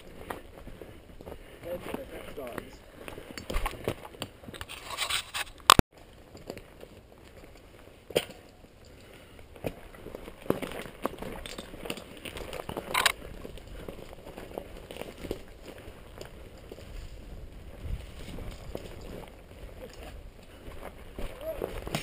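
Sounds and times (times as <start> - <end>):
tire crunching over loose rocks: 0.0 - 22.0.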